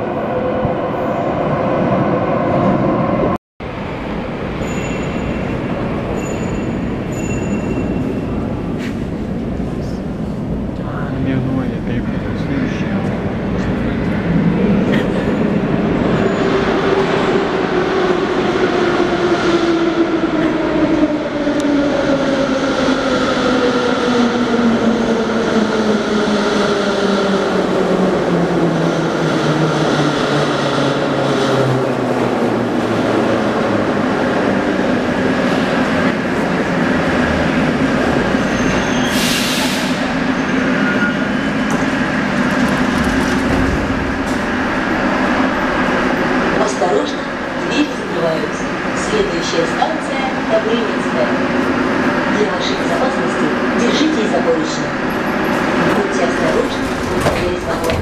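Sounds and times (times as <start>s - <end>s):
train wheels rumbling: 3.8s - 58.0s
train brake hiss: 39.0s - 40.0s.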